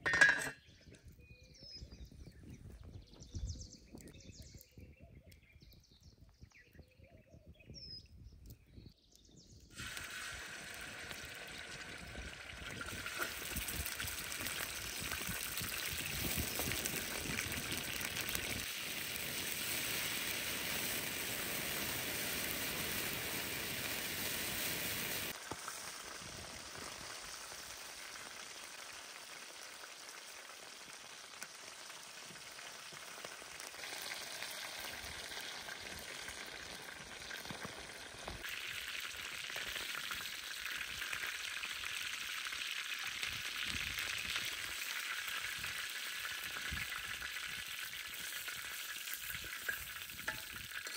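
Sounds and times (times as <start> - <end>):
bird chirp: 0.5 - 9.7
food sizzling in hot oil: 9.7 - 50.9.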